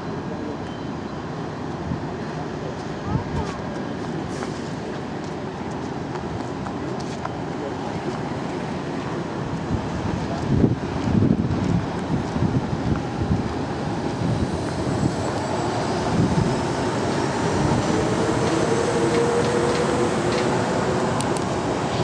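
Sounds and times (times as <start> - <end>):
jet engine rumble: 1.5 - 22.0
wind on microphone: 9.5 - 22.0.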